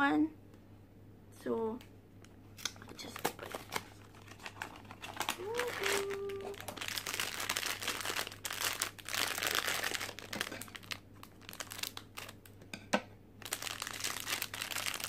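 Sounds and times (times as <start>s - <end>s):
foil pouch crinkling: 2.8s - 12.5s, 13.4s - 15.0s.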